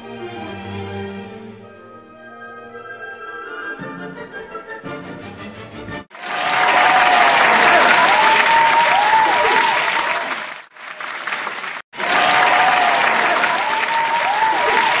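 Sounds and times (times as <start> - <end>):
crowd applause: 6.1 - 15.0.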